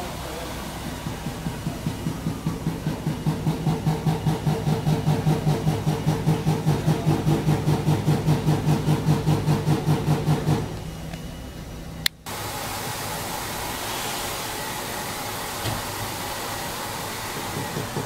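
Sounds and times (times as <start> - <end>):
machine throbbing: 0.0 - 13.7.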